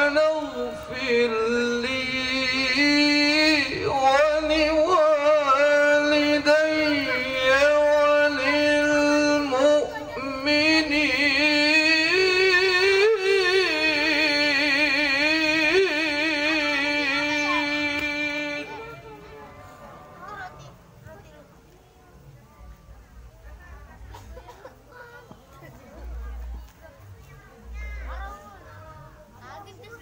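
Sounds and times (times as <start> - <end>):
man chanting into microphone: 0.0 - 19.2.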